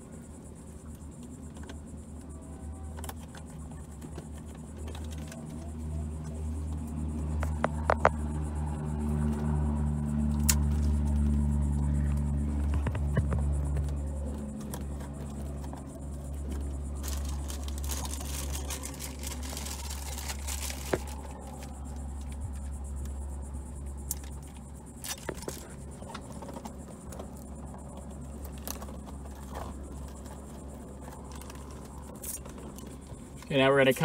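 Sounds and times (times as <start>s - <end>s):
steady low hum: 0.0s - 34.0s
plastic bag rustling and crinkling: 12.7s - 21.9s.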